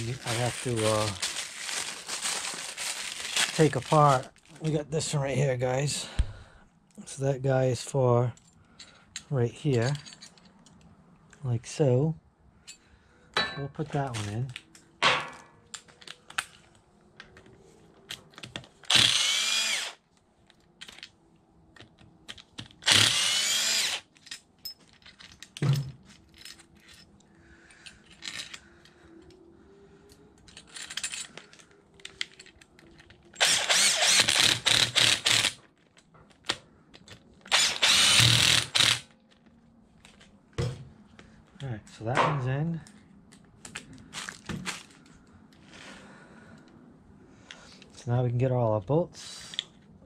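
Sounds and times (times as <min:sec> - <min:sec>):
light clicks of parts handled: 0:08.2 - 0:11.4, 0:24.1 - 0:33.4, 0:49.2 - 0:50.0
cordless drill driving a fastener: 0:18.8 - 0:20.0, 0:22.8 - 0:24.1, 0:33.4 - 0:35.6, 0:37.5 - 0:39.1.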